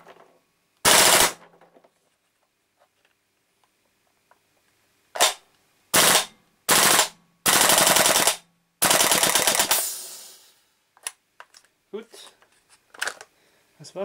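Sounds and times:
airsoft rifle firing full auto: 0:00.8 - 0:01.5, 0:05.2 - 0:10.3.

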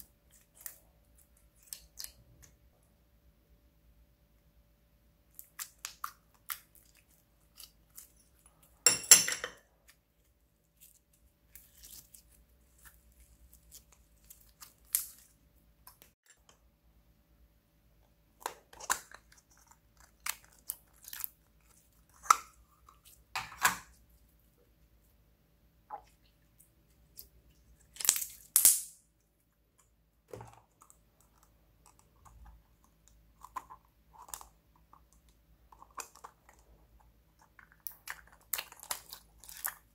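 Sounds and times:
slime squelching: 0:00.0 - 0:02.7, 0:05.3 - 0:08.8, 0:09.7 - 0:16.5, 0:18.3 - 0:25.0, 0:29.6 - 0:39.9
slime clicks and crackles: 0:37.5 - 0:39.9.

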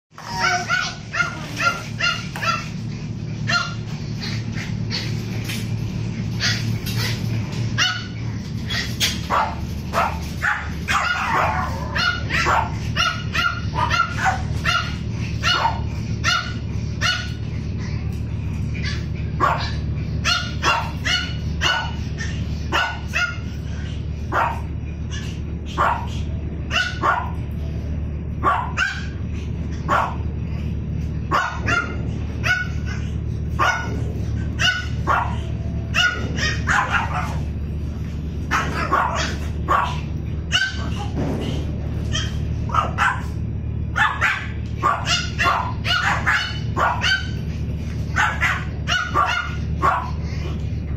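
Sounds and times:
dogs barking and yipping: 0:00.1 - 0:50.9
steady low hum: 0:00.1 - 0:50.9.

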